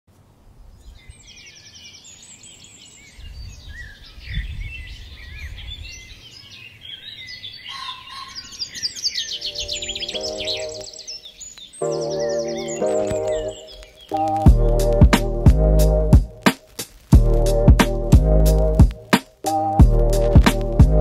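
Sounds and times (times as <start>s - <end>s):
birds chirping and trilling: 0.6s - 16.4s
musical notes: 9.4s - 21.0s.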